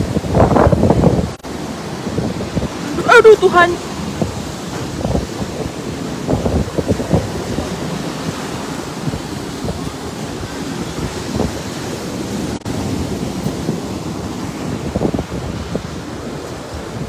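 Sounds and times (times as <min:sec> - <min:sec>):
surf: 0:00.0 - 0:17.0
wind buffeting microphone: 0:00.0 - 0:17.0.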